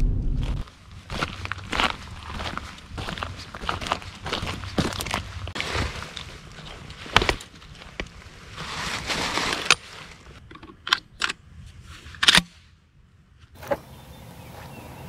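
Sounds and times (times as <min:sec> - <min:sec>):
rustling of clothing and leaves: 0:00.2 - 0:10.6.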